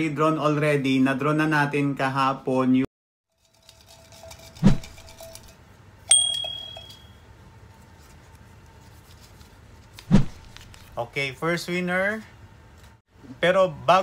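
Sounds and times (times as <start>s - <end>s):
bright bell-like ding: 6.1s - 7.2s.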